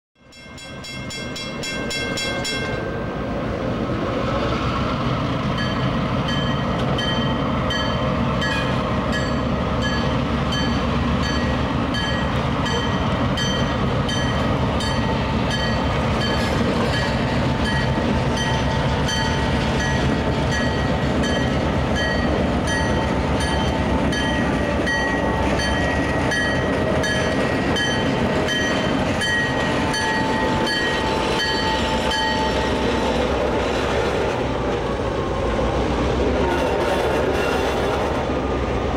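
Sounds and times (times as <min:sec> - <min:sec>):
locomotive bell ringing: 0:00.2 - 0:03.3, 0:05.6 - 0:33.0
diesel locomotive engine drone: 0:00.2 - 0:38.9.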